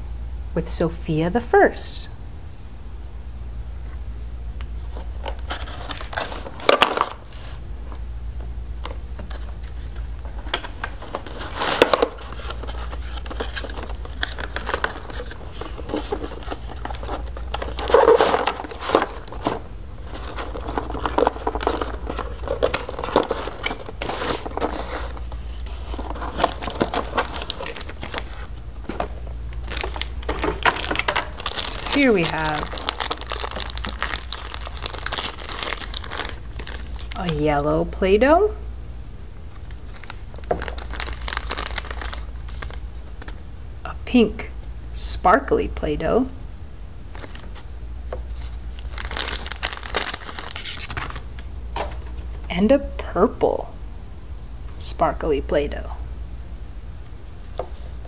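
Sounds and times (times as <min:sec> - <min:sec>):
low steady hum: 0:00.0 - 0:58.0
packaging crinkling and rustling: 0:04.8 - 0:08.0, 0:08.8 - 0:37.4, 0:39.5 - 0:43.4, 0:47.1 - 0:52.5.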